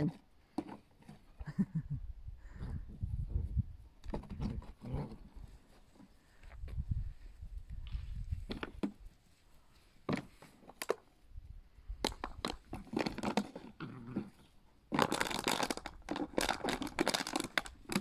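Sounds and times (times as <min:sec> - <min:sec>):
plastic bottle crunching: 0:12.0 - 0:14.3, 0:14.9 - 0:18.0.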